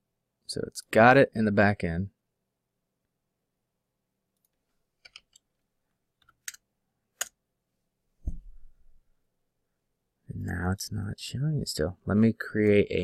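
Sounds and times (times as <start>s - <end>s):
computer mouse clicks: 4.4s - 5.5s, 6.2s - 6.6s, 7.2s - 7.4s
low thump: 8.2s - 8.7s.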